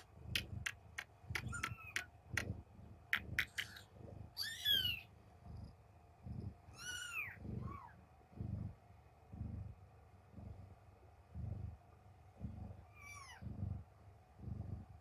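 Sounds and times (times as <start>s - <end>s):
sharp clicks: 0.0s - 3.9s
cat purring: 0.0s - 15.0s
kitten squeak: 1.4s - 2.1s, 4.4s - 5.0s, 6.7s - 7.9s
kitten mewing: 1.4s - 2.6s.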